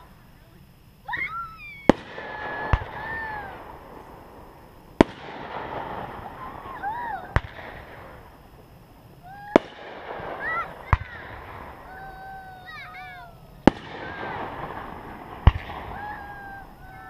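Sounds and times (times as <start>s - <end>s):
crackling hiss of fireworks: 0.0s - 17.0s
fireworks bangs: 0.0s - 17.0s
onlookers calling out: 1.0s - 4.1s, 6.0s - 8.2s, 9.2s - 17.0s.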